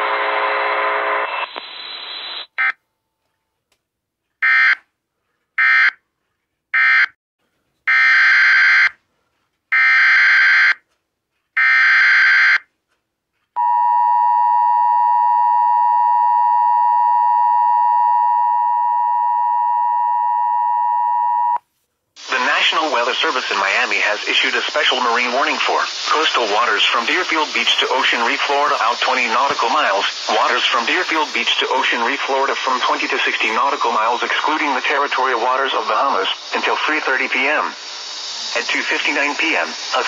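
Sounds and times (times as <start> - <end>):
spoken warning: 22.2 - 37.8, 38.5 - 40.0.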